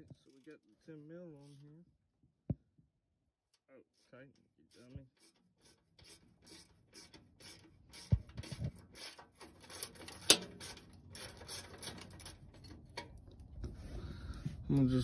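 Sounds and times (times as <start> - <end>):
ratchet clicking: 5.2 - 12.7.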